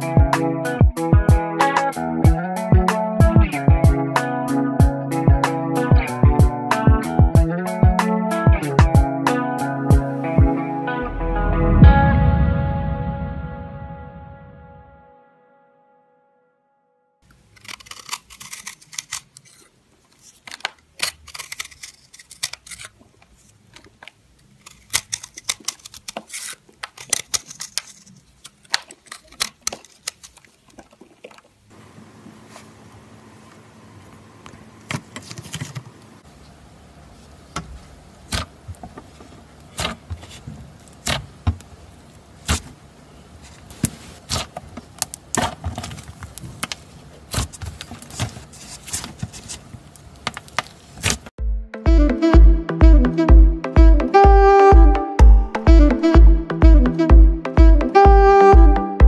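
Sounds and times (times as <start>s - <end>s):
slime squishing: 21.0s - 31.7s
faint steady hiss: 30.0s - 45.4s.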